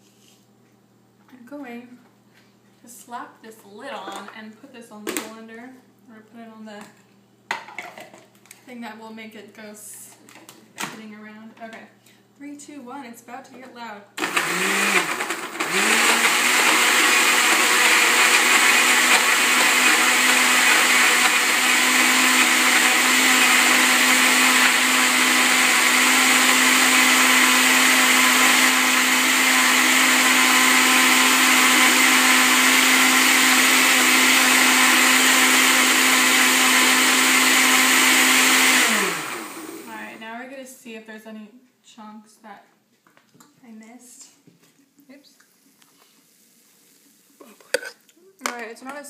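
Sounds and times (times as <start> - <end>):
blender whirring: 14.2 - 40.2.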